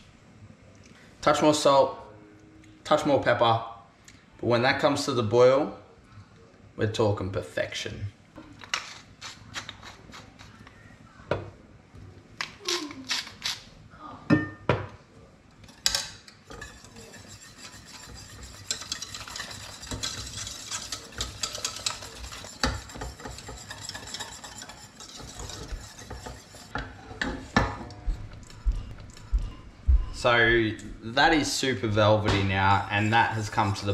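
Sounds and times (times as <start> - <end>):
whisk scraping a saucepan: 8.7 - 10.7, 15.7 - 29.6, 32.4 - 33.9.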